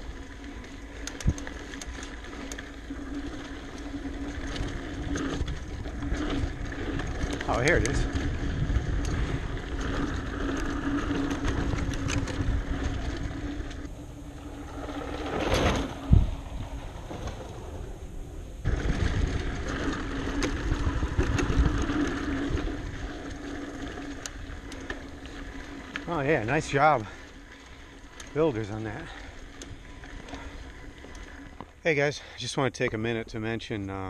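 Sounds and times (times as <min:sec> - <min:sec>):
bike whooshing past: 0:00.0 - 0:31.7
bike rattles and clicks: 0:00.0 - 0:34.0
wind on microphone: 0:04.8 - 0:23.2.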